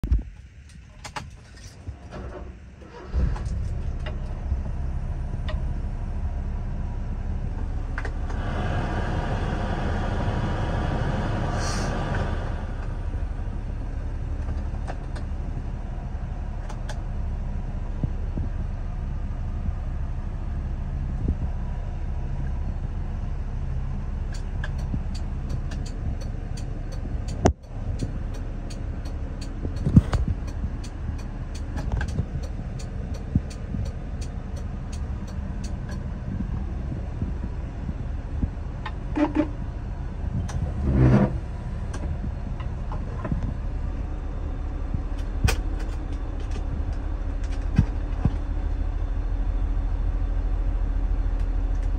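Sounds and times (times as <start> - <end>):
starter clicks: 24.3 - 36.0.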